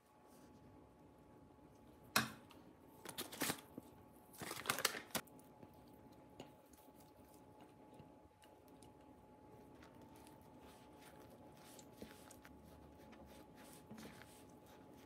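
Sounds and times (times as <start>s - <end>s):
ingredients rustling and scraping: 3.0s - 5.8s, 9.5s - 15.0s.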